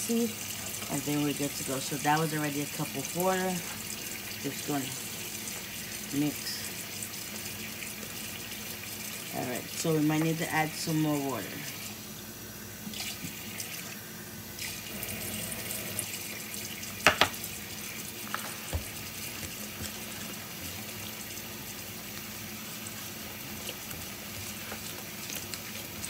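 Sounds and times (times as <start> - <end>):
utensil knocking against bowl: 17.0 - 17.4
batter stirred in plastic bowl: 18.2 - 26.0.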